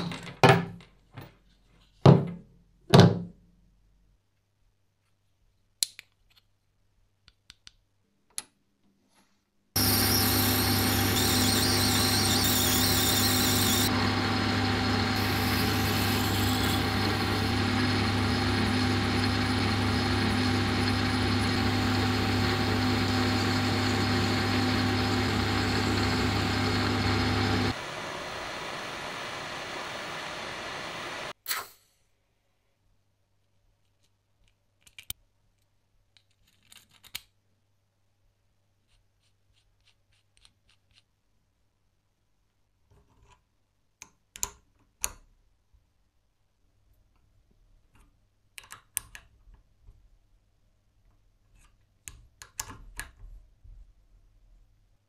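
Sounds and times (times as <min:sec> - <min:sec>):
machine tool humming: 0:09.8 - 0:31.3.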